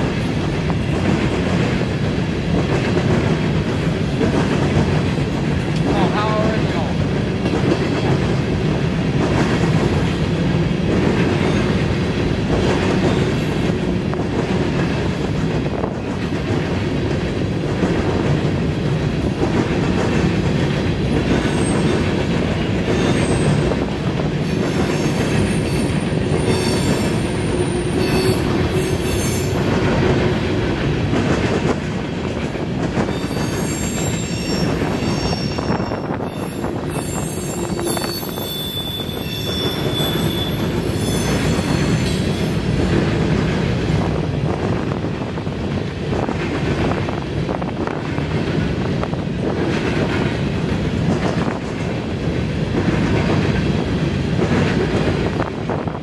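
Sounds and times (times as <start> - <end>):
train wheels rumbling on rails: 0.0 - 56.0
high-pitched wheel squeal: 33.1 - 42.6.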